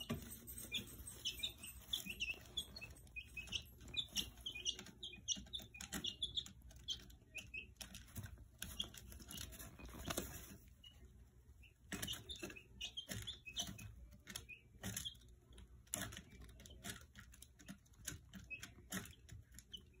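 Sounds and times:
chicks pecking at plastic feeder: 0.0 - 20.0
chicks peeping softly: 0.0 - 20.0
chicks scratching in shavings: 0.0 - 20.0.

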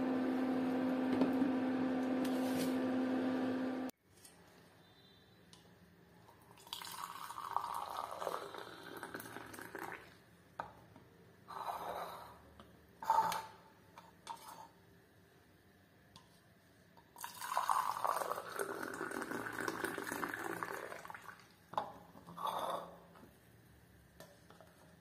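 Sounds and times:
tea pouring into cups: 6.4 - 10.2, 17.2 - 21.6.

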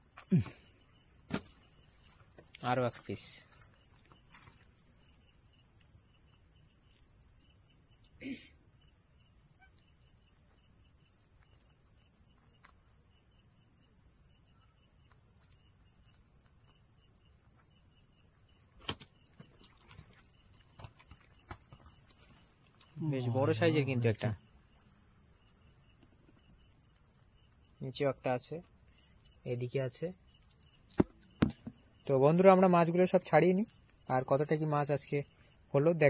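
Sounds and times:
night insects chirring: 0.0 - 36.0
faint knocks: 30.9 - 31.8.

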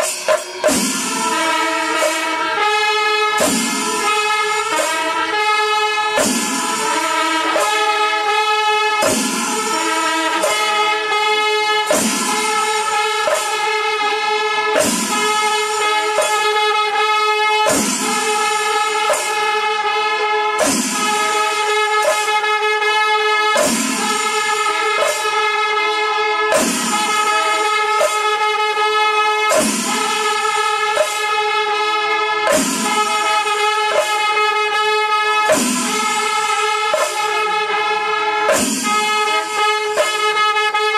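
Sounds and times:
sharp cymbal crash: 0.0 - 5.3, 6.2 - 7.8, 8.9 - 10.9, 17.7 - 19.6, 26.5 - 28.4, 29.5 - 31.4, 32.5 - 34.3, 35.4 - 37.8, 38.5 - 40.2
held wind instrument notes: 0.0 - 40.9
percussion: 0.0 - 40.9.

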